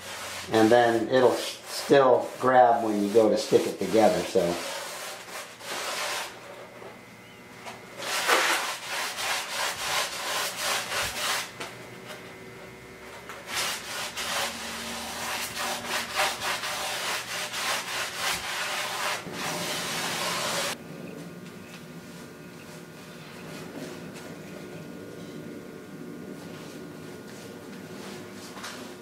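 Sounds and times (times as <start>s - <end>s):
paintbrush scrubbing on foam: 0.0s - 6.4s, 8.0s - 11.5s, 13.5s - 20.8s.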